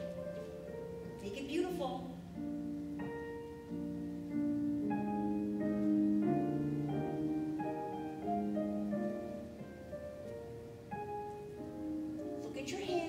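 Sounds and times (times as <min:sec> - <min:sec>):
classical piano music: 0:00.0 - 0:13.0.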